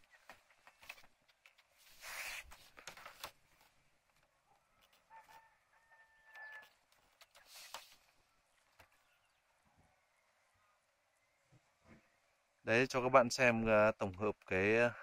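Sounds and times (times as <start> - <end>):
rustling and soft clicks: 0.0 - 5.6, 6.2 - 9.2
rooster crowing faintly: 4.4 - 7.0.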